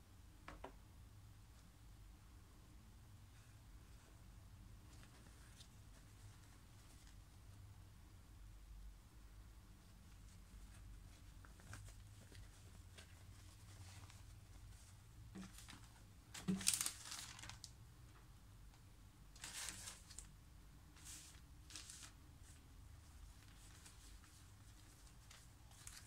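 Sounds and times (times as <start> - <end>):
plastic packets crinkling: 16.4 - 17.7, 19.4 - 20.3, 21.1 - 22.2, 24.7 - 26.0.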